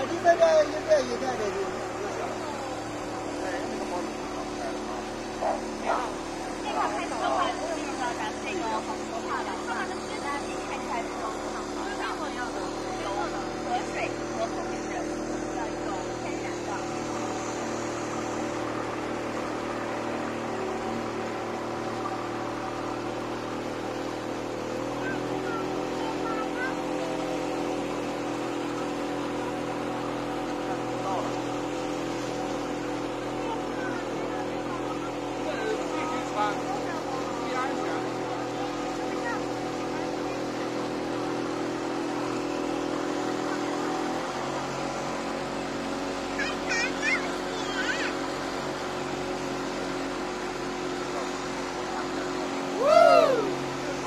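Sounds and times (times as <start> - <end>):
boat engine humming: 0.0 - 54.0
water rushing: 0.0 - 54.0
wind: 0.0 - 54.0.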